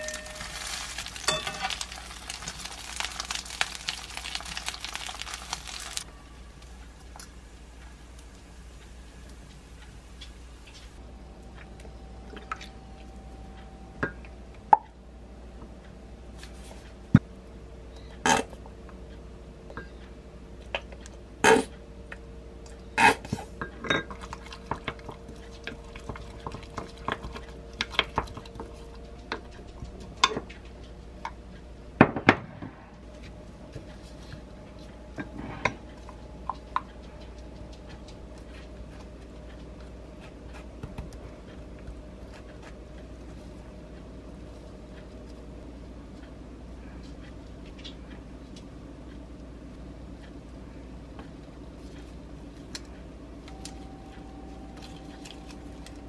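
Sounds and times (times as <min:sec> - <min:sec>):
wooden spoon clinking against glass: 0:00.0 - 0:01.9
faint steady hum: 0:00.0 - 0:56.0.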